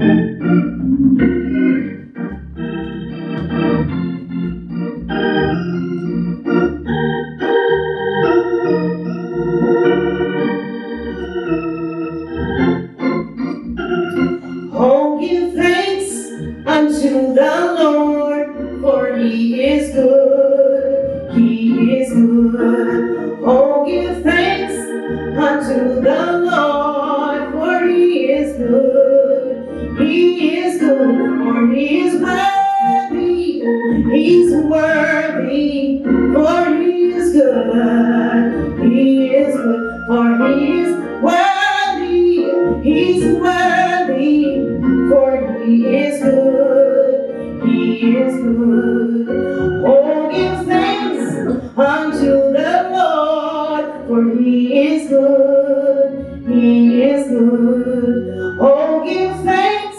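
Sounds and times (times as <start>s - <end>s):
organ playing chords: 0.0s - 59.9s
woman singing into microphone: 14.7s - 59.9s.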